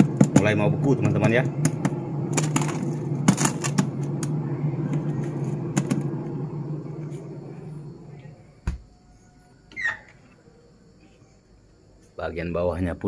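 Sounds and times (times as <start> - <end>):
plastic containers clicking and knocking: 0.0 - 0.6
refrigerator humming: 0.0 - 13.0.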